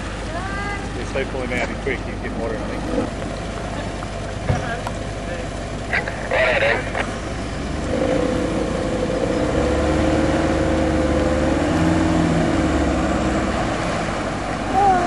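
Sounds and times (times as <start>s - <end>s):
engines working under load: 0.0s - 15.0s.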